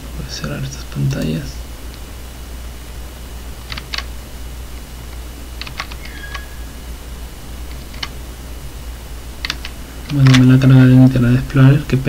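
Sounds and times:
steady low hum: 0.0 - 12.0
computer keyboard keys clicking: 3.7 - 4.1, 5.6 - 6.5, 7.7 - 8.2, 9.4 - 10.5.

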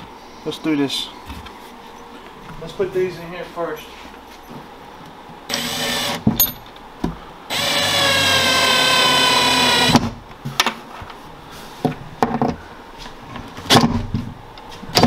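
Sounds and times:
cordless drill driving screw: 5.5 - 6.2, 7.5 - 10.0.

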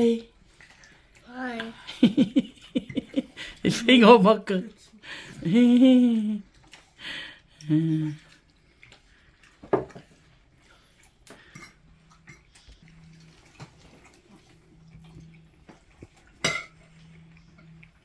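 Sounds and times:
faint low hum: 0.0 - 18.0
cutlery clinking on plates: 11.3 - 12.5, 16.3 - 16.9.

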